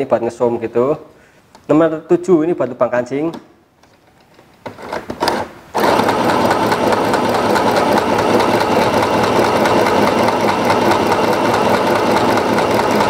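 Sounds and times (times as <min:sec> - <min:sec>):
sewing machine running: 0:05.3 - 0:13.0.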